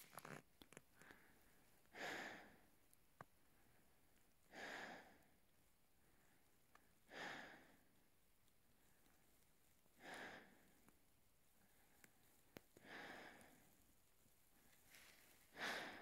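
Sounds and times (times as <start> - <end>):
person breathing heavily: 1.0 - 2.7, 4.5 - 5.3, 7.1 - 7.9, 10.0 - 10.8, 12.8 - 13.8, 15.0 - 16.0.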